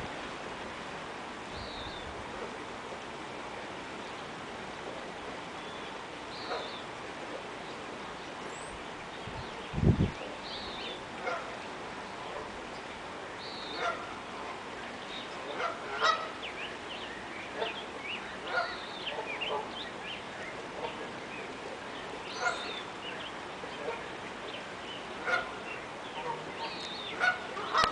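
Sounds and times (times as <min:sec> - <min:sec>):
river water rushing: 0:00.0 - 0:27.9
geese honking: 0:11.2 - 0:11.6, 0:13.7 - 0:14.6, 0:15.5 - 0:16.4, 0:18.4 - 0:19.8, 0:22.3 - 0:22.8, 0:25.2 - 0:27.9.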